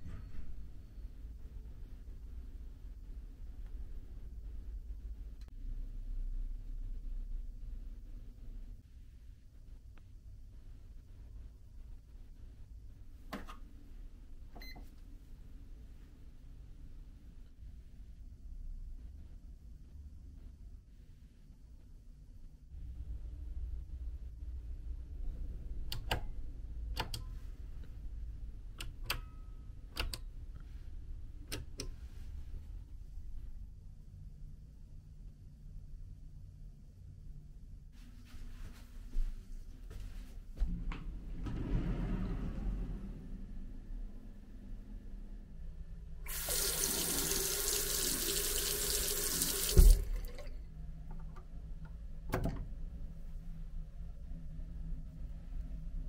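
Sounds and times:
light switches clicking: 27.0 - 27.3, 30.0 - 30.2
tap water running into basin: 46.3 - 50.5
tap closing thump: 49.8 - 50.0.

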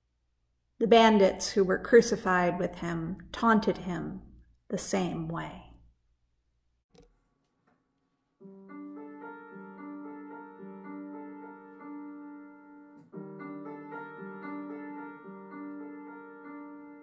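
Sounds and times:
solo piano broken chords: 8.4 - 17.0.

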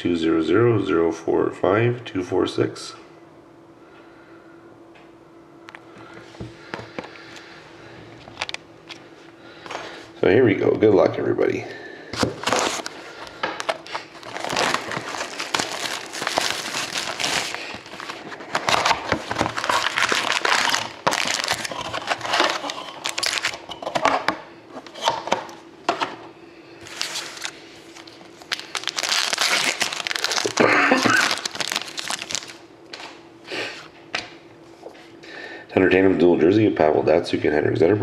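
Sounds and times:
cards rustling and sliding: 12.2 - 23.6, 26.8 - 33.2
plastic wrappers crinkling and tearing: 12.4 - 23.7, 26.8 - 33.2.

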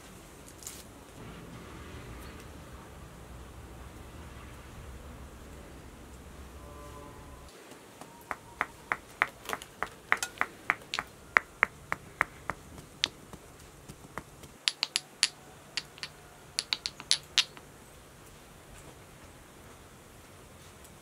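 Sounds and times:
pestle clicking in stone mortar: 8.0 - 17.6.

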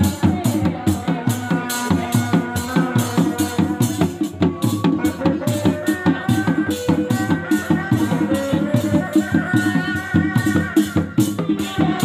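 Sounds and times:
frame drums beaten fast: 0.0 - 12.0.

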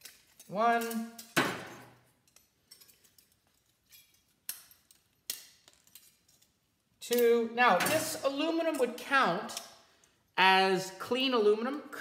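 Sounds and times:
faint metallic clicks and clinks: 0.0 - 1.4, 2.0 - 7.4.

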